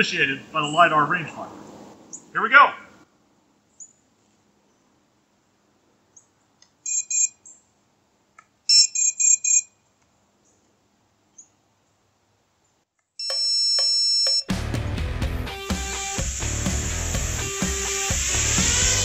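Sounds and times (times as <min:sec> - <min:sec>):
high-pitched electronic beeps: 0:06.9 - 0:07.4, 0:08.7 - 0:09.7.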